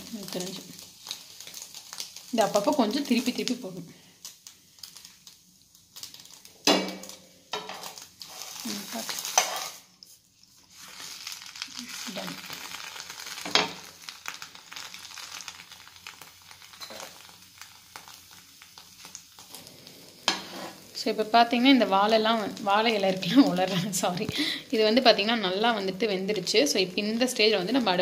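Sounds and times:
leaf parcel sizzling on griddle: 0.0 - 28.0
leaf rustling: 8.2 - 9.7, 10.7 - 13.4.

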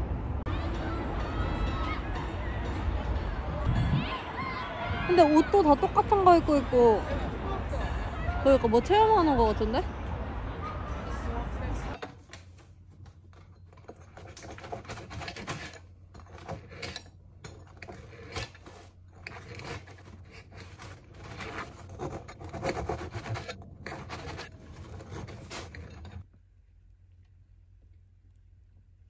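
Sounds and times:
bread knife sawing crusty loaf: 17.8 - 26.2.

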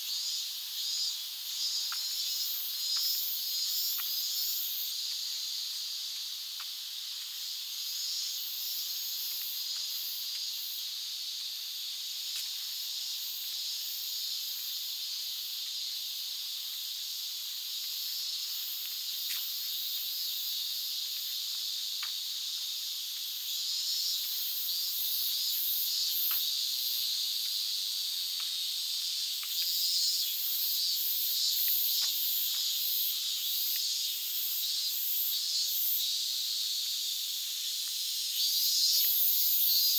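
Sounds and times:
cicadas singing: 0.0 - 39.9
faint ticks: 1.7 - 11.6, 12.3 - 12.8, 17.7 - 20.2, 21.0 - 23.5, 25.5 - 34.6, 36.7 - 39.8.

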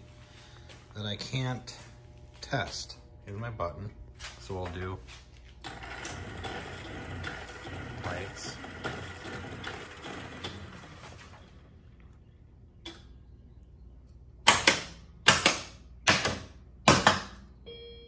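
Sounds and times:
loud mechanical clacks: 5.7 - 11.0.

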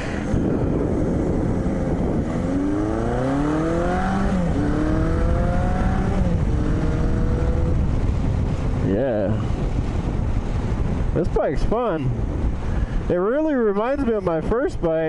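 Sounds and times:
motorcycle engine accelerating: 0.0 - 8.9.

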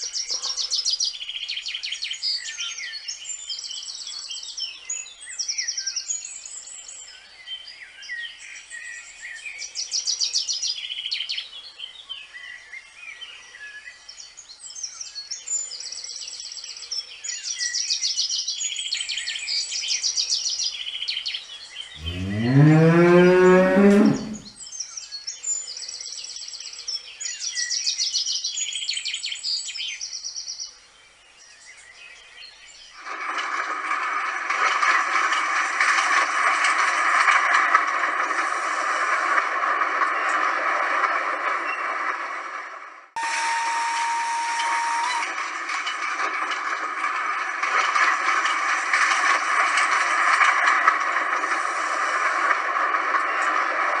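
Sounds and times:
birds singing and chirping: 0.0 - 33.0
cow mooing: 22.0 - 24.5.

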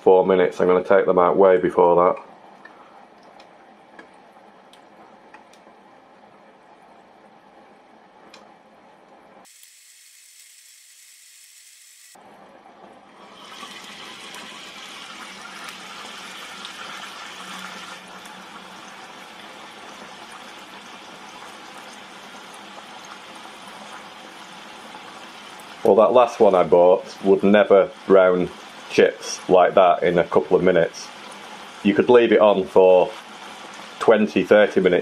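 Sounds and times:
chips sizzling in hot oil: 9.4 - 12.2, 13.2 - 25.9.

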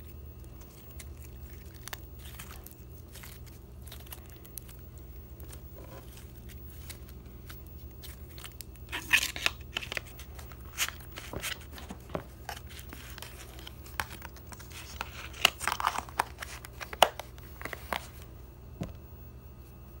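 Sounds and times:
slime popping and crackling: 0.3 - 11.8.

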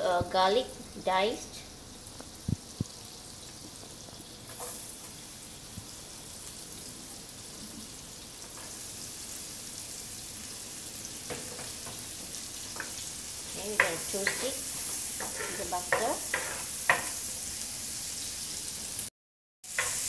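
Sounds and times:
butter sizzling in a frying pan: 0.0 - 20.0.

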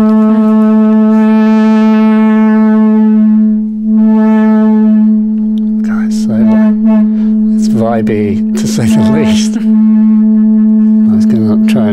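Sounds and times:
buzzy synthesizer drone: 0.0 - 11.9
high synth sweeps: 5.8 - 11.9.

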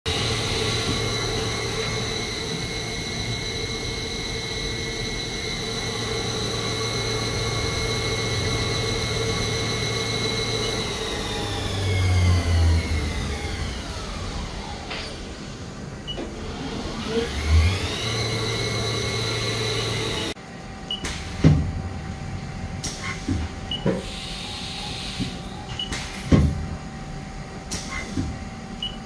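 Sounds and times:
lathe spindle whine: 0.1 - 20.4
low machine hum: 0.1 - 29.0.

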